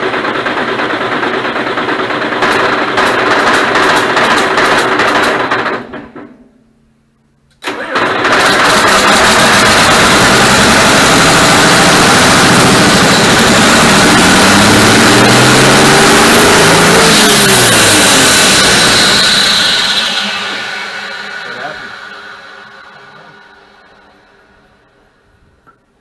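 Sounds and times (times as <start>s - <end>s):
engine starting: 7.6s - 14.1s, 16.2s - 24.0s
diesel engine running: 7.6s - 25.5s
engine winding down: 7.6s - 25.7s.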